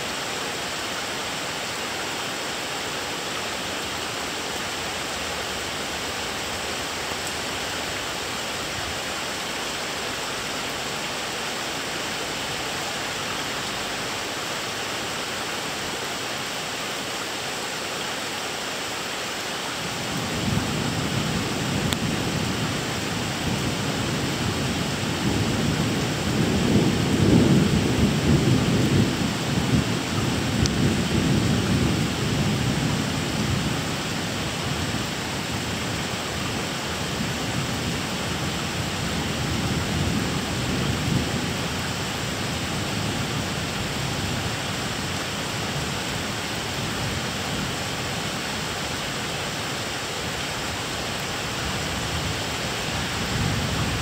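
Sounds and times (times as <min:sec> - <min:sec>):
steady rain: 0:00.0 - 0:54.0
rolling thunder: 0:20.2 - 0:33.8.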